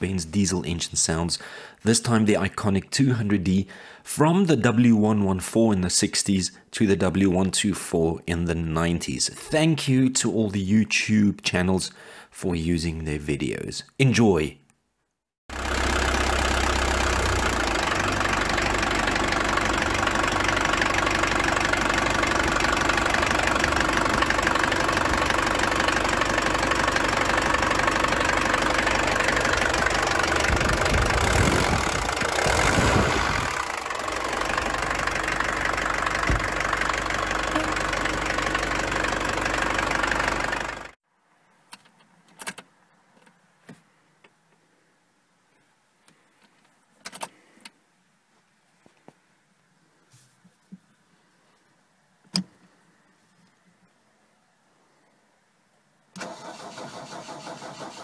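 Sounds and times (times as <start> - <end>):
diesel engine idling: 15.5 - 41.0.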